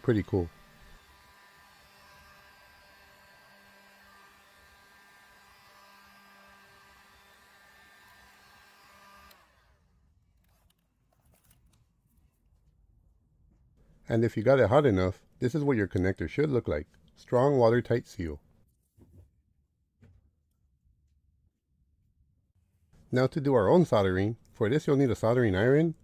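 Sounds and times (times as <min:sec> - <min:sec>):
heat gun blowing hot air: 0:00.0 - 0:09.6.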